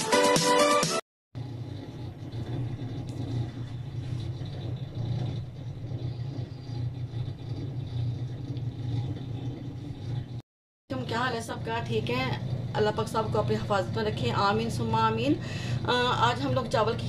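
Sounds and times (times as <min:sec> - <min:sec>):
low background rumble: 0:01.4 - 0:17.0.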